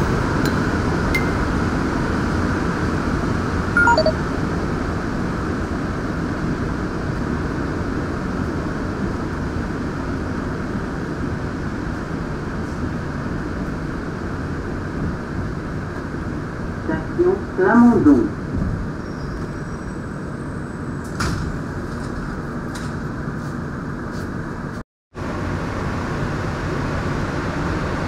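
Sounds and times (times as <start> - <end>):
metro train rumbling in tunnel: 0.0 - 28.0
falling three-note chime: 3.8 - 4.1.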